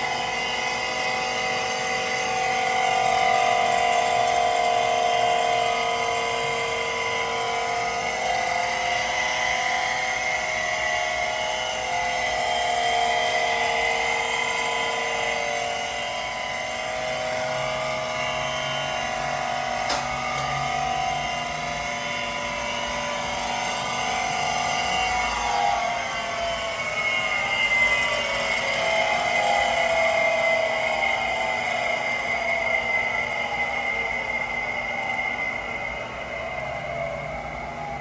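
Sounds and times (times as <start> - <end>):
grinder spindle motor whine: 0.0 - 36.9
sharp click: 19.2 - 20.6.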